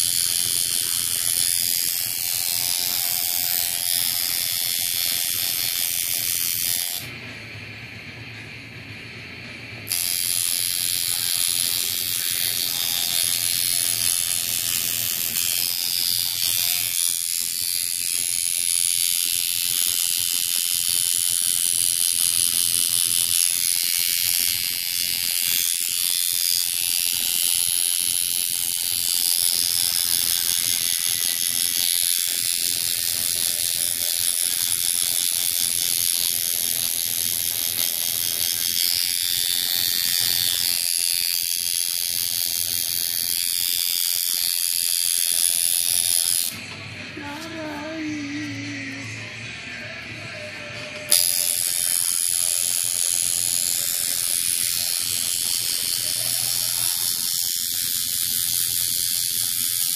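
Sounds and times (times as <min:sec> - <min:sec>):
tattoo machine buzzing: 0:00.0 - 0:59.9.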